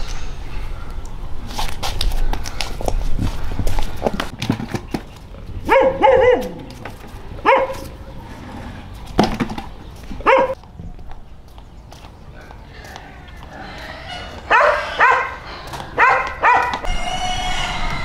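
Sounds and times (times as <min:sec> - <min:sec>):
dog barking: 0:05.7 - 0:06.6, 0:07.4 - 0:07.9, 0:10.2 - 0:10.6, 0:14.5 - 0:15.4, 0:16.0 - 0:16.9.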